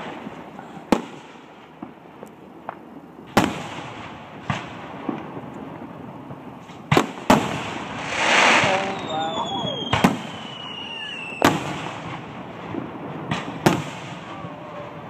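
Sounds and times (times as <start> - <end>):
faint firework pops: 6.6 - 14.3
firework shells bursting: 7.0 - 12.0.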